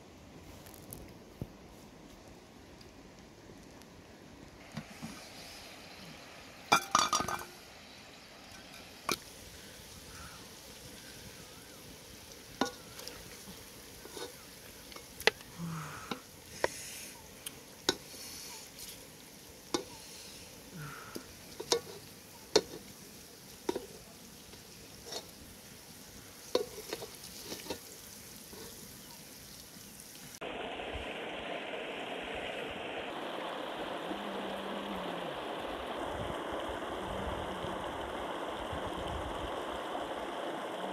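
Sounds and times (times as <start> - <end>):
river running over rocks: 3.9 - 29.1, 29.7 - 40.9
pot lid clattering: 6.7 - 7.5
ladle scraping metal pot: 12.5 - 15.4, 19.7 - 20.0, 21.2 - 22.9, 24.5 - 25.4, 26.5 - 28.8.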